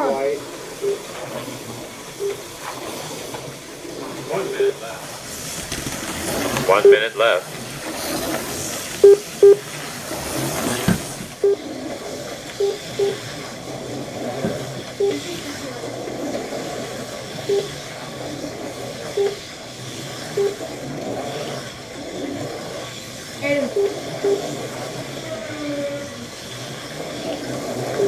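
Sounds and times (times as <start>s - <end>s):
slot car motors whirring: 0.0s - 28.0s
short electronic beeps: 0.8s - 1.1s, 2.2s - 2.4s, 4.6s - 4.8s, 6.8s - 7.1s, 9.0s - 9.6s, 11.4s - 11.6s, 12.6s - 13.2s, 15.0s - 15.3s, 17.5s - 17.8s, 19.1s - 19.4s, 20.4s - 20.6s, 23.4s - 24.6s.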